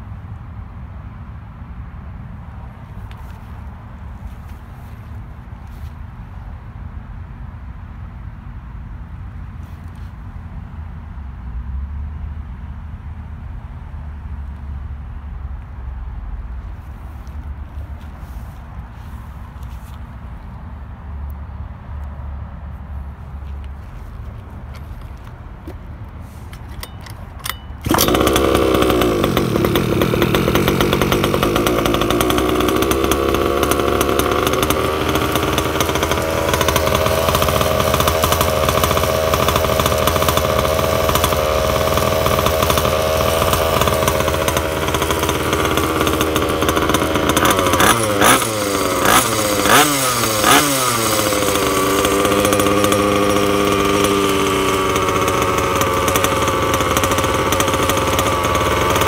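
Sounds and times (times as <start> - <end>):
two-stroke scooter engine: 24.1 - 59.0
clicks: 24.4 - 28.6.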